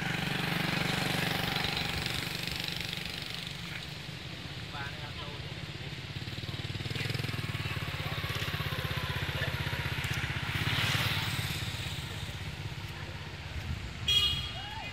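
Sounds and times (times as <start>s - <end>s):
rushing traffic: 0.0s - 14.9s
small motorcycle engine puttering: 6.2s - 12.9s.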